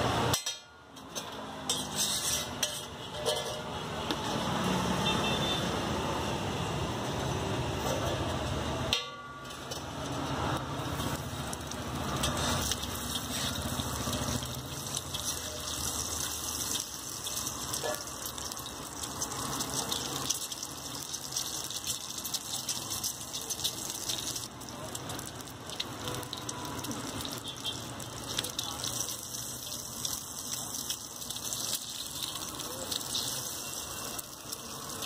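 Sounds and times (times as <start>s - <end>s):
oil sizzling on griddle: 0.0s - 35.0s
street traffic noise: 0.0s - 35.0s
metal spatula scraping iron: 0.3s - 3.8s, 12.2s - 13.8s.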